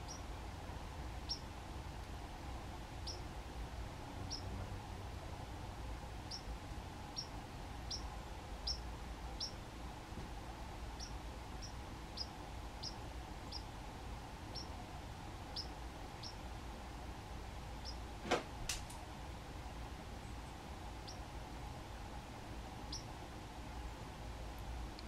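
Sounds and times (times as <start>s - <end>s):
sparrow chip calls: 0.0s - 0.3s, 1.2s - 1.5s, 3.0s - 3.3s, 4.3s - 4.5s, 6.3s - 6.5s, 7.1s - 9.6s, 11.0s - 13.7s, 14.5s - 14.8s, 15.5s - 16.4s, 17.8s - 18.0s, 21.0s - 21.2s, 22.9s - 23.1s.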